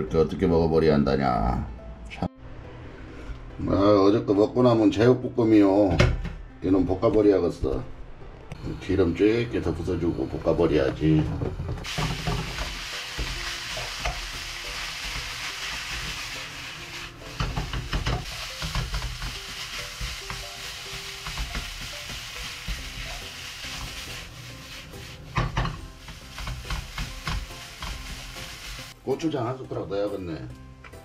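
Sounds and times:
food sizzling in oil: 11.8s - 29.0s
wooden spoon scraping a pan: 15.1s - 29.0s.

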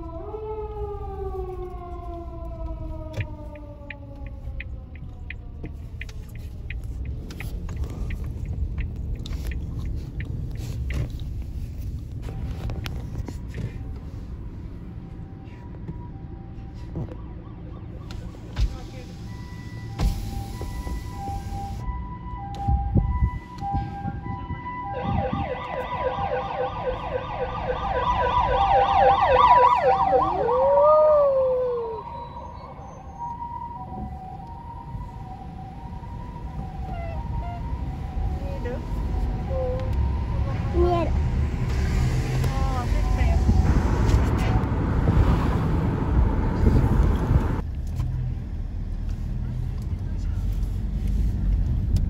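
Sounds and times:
police siren falling: 0.0s - 6.5s, 15.2s - 41.2s
faint two-tone ambulance siren: 0.0s - 11.1s, 12.2s - 44.9s
road rumble inside car: 0.0s - 26.0s, 29.6s - 52.0s.

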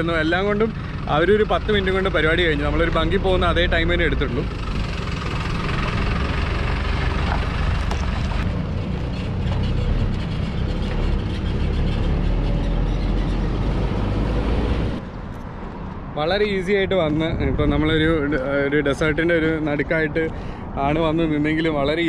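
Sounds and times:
truck engine pulling away: 0.0s - 15.0s.

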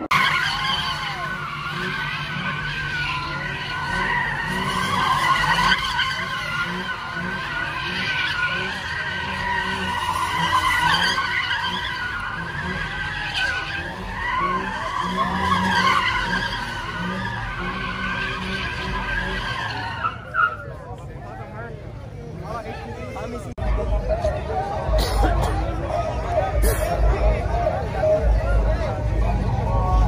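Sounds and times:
tyres squealing: 0.0s - 20.9s
car engine running hard: 0.0s - 30.0s.

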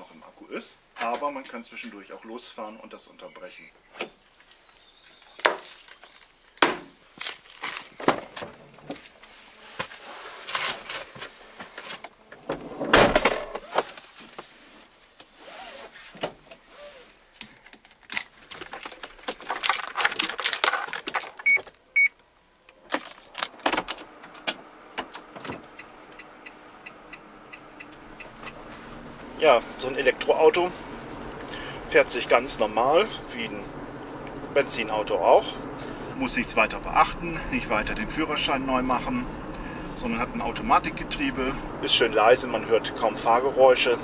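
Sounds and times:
seatbelt pulled and fastened: 15.2s - 17.1s
clicks knocks and rattles: 17.4s - 21.8s
light regular ticking: 25.2s - 28.9s.

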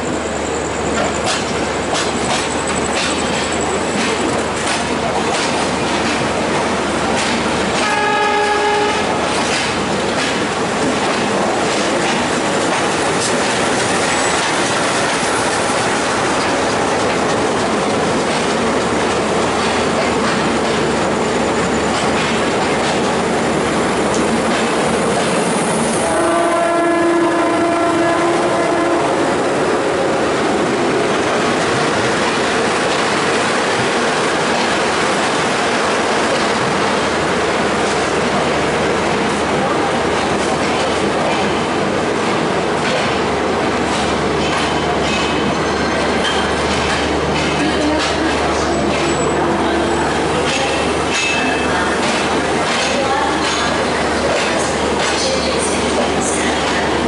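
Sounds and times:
train rumble and wheels on rails: 0.0s - 57.0s
train horn: 7.8s - 9.2s, 25.9s - 29.4s.

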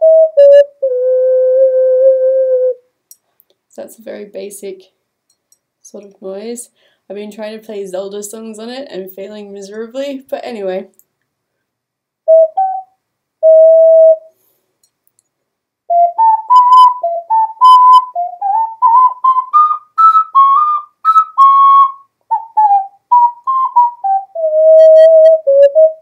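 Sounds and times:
ocarina notes: 0.0s - 2.8s, 12.3s - 14.3s, 15.9s - 26.0s.

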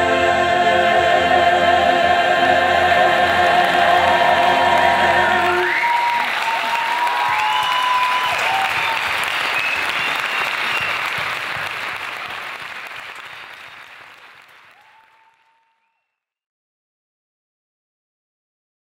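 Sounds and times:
audience applauding: 3.2s - 16.0s.

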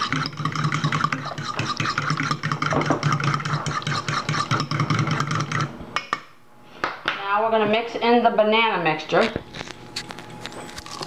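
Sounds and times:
fork beating batter in metal bowl: 0.0s - 5.8s.

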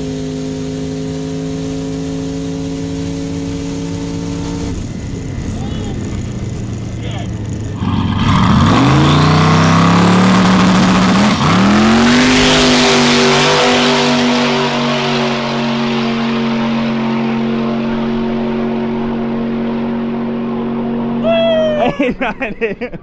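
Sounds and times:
drag car engine at full throttle: 0.0s - 21.3s.

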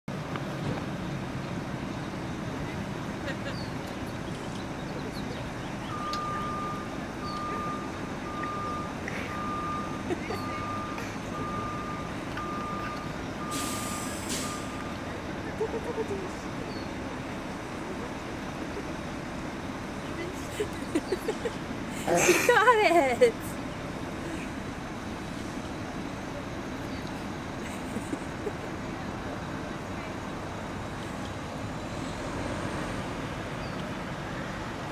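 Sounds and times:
low outdoor rumble: 0.1s - 34.9s
road traffic hum: 0.1s - 34.9s
vehicle reversing alarm beeping: 4.3s - 21.6s.

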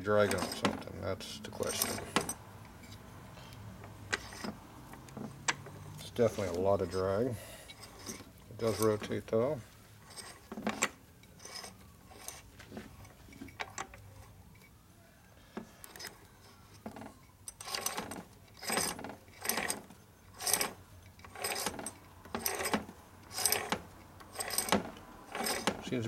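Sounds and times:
gearset clicking and rattling: 1.6s - 3.0s, 16.8s - 26.0s.

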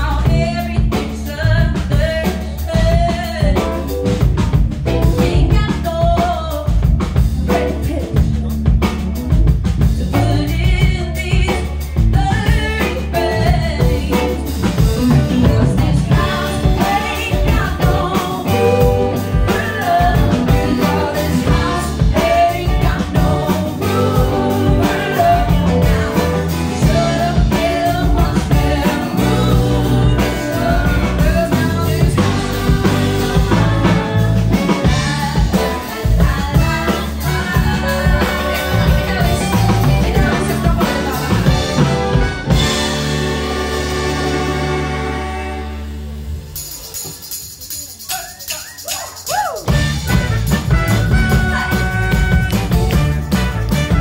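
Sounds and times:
woman singing: 0.0s - 4.2s, 5.0s - 9.0s, 9.8s - 42.5s
live band playing: 0.0s - 54.0s.

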